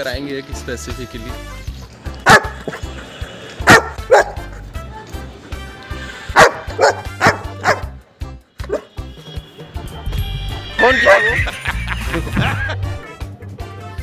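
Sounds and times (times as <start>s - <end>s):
background music: 0.0s - 14.0s
dog barking: 2.2s - 2.8s, 3.6s - 4.6s, 6.3s - 8.0s, 8.6s - 8.9s.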